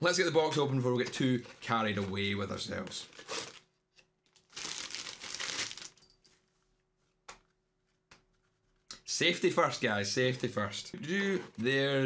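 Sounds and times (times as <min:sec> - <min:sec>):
packaging rustling and crinkling: 0:01.6 - 0:06.1.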